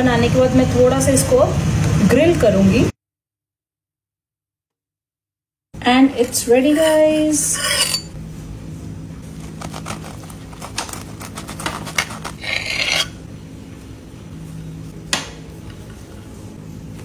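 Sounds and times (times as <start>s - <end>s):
steady low hum: 5.8s - 17.0s
knife scraping rasp: 6.5s - 8.2s, 9.4s - 13.2s
knife cutting crackling crust: 9.4s - 13.2s.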